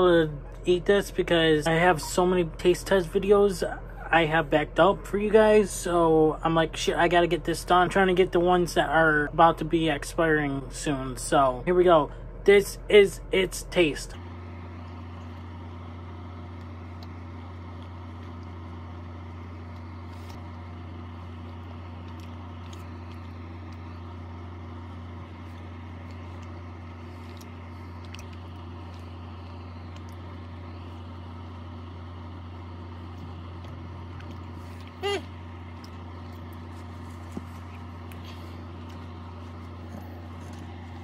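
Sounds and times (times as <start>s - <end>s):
low hum: 0.0s - 41.0s
person chewing candy bar: 14.6s - 41.0s.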